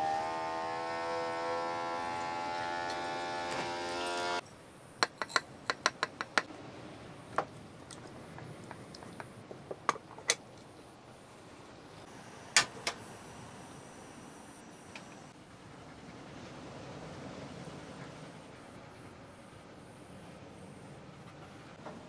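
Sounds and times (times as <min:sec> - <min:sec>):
sharp clicks and knocks: 0:05.0 - 0:06.5, 0:07.4 - 0:10.7.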